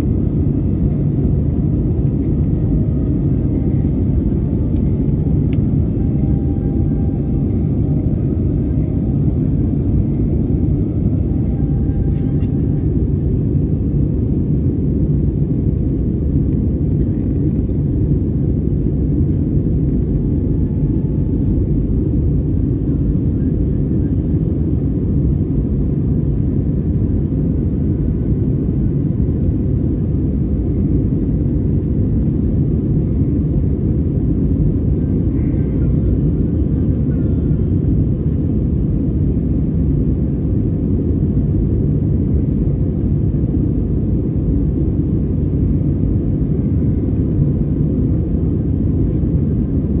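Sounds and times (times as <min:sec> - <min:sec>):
airplane cabin engine rumble: 0:00.0 - 0:50.0.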